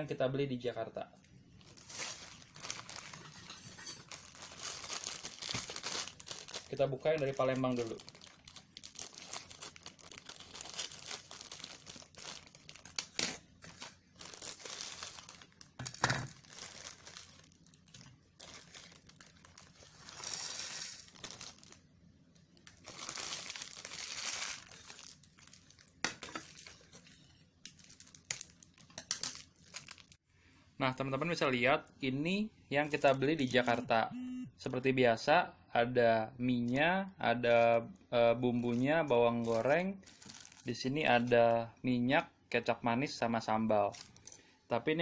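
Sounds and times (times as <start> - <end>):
plastic wrapper crinkling: 1.6 - 30.2, 38.5 - 41.3, 43.8 - 44.4
scissors cutting plastic packet: 1.8 - 21.7, 27.7 - 30.1.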